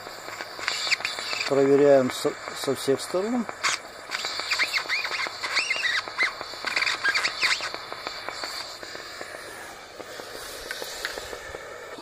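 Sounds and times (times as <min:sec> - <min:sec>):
gas torch flame hissing: 0:00.0 - 0:12.0
small birds chirping: 0:04.1 - 0:07.8.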